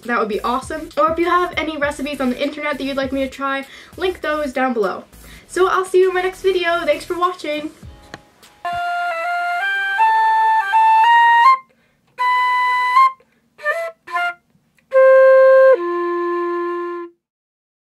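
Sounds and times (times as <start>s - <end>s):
solo flute melody: 8.6s - 17.3s.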